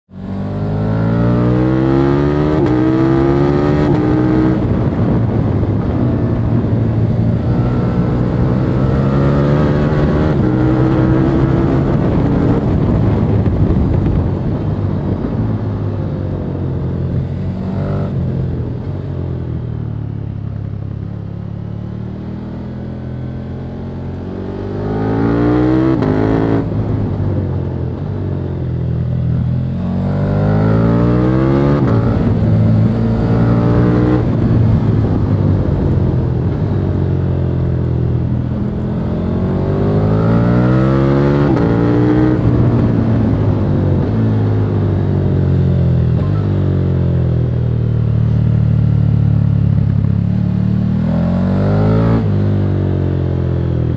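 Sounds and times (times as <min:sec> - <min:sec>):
motorcycle engine revving: 0:00.1 - 0:20.4, 0:21.3 - 0:53.9
wind rush: 0:00.6 - 0:20.0, 0:24.3 - 0:46.4.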